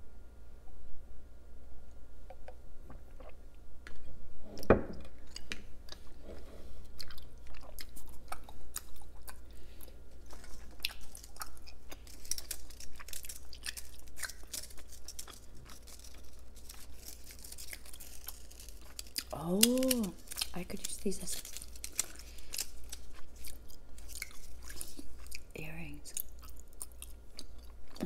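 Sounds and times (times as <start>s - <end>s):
crisp chewing crunches: 6.9s - 28.0s.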